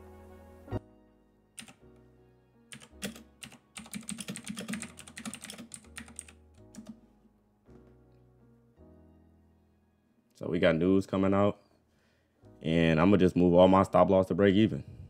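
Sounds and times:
soft background music: 0:00.0 - 0:15.0
computer keyboard typing: 0:01.6 - 0:01.8, 0:02.7 - 0:07.0.

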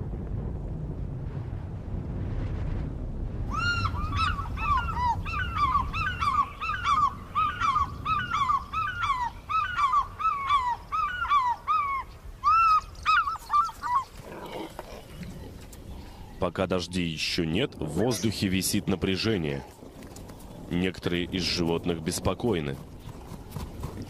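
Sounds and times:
low rumbling noise: 0:00.0 - 0:10.2
fish eagles yelping: 0:03.5 - 0:14.4.

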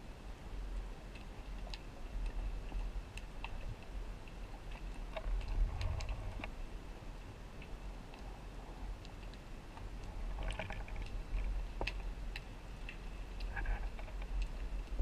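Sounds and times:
underwater rush of water: 0:00.0 - 0:15.0
sharp underwater clicks: 0:01.1 - 0:06.6, 0:09.0 - 0:15.0.

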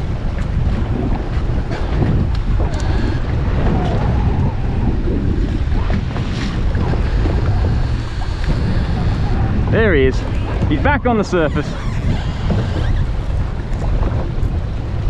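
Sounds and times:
water slapping against hull: 0:00.0 - 0:15.0
wind buffeting microphone: 0:00.0 - 0:15.0.

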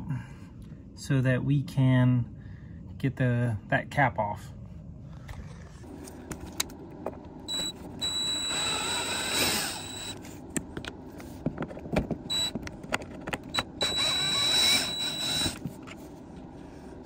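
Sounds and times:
cordless screw gun whining: 0:07.5 - 0:10.2, 0:12.3 - 0:12.6, 0:13.5 - 0:15.7.

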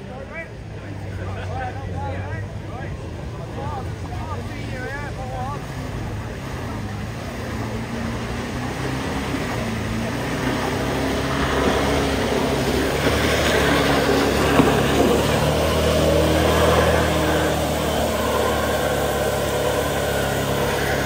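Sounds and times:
car engine climbing: 0:00.0 - 0:21.0
tyres spinning in mud: 0:06.2 - 0:21.0.

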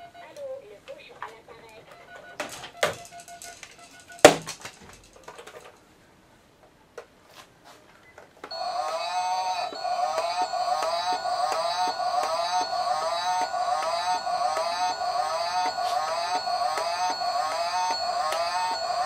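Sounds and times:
plastic toys clattering: 0:02.4 - 0:05.9
electronic toy melody: 0:08.5 - 0:19.0.

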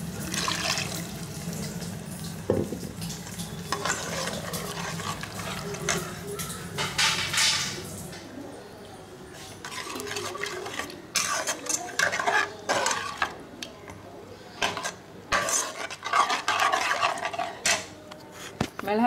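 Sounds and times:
metal spoon stirring in a pot: 0:00.2 - 0:01.1, 0:03.1 - 0:07.8, 0:09.3 - 0:18.1.

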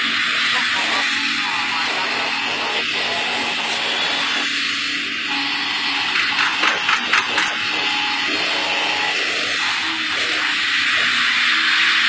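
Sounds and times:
excavator engine and hydraulics: 0:00.0 - 0:12.0
excavator clanks: 0:06.2 - 0:07.8.

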